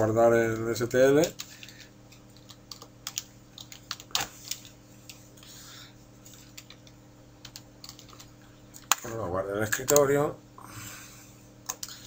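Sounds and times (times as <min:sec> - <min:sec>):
keyboard typing: 0:00.5 - 0:05.2, 0:06.3 - 0:09.0, 0:11.6 - 0:12.0.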